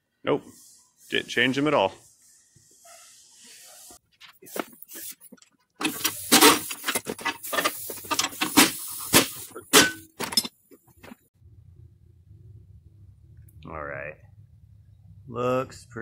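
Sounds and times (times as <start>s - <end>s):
metal clattering and clinking: 5.3s - 8.6s, 9.7s - 11.1s.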